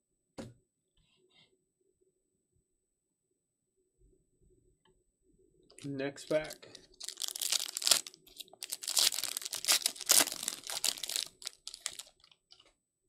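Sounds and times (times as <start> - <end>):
foil wrapper tearing and crinkling: 6.4 - 12.3.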